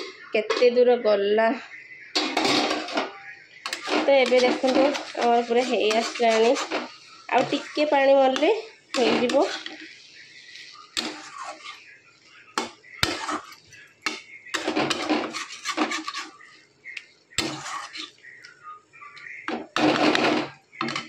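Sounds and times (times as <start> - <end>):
metal spatula scraping a pan: 2.1 - 21.0.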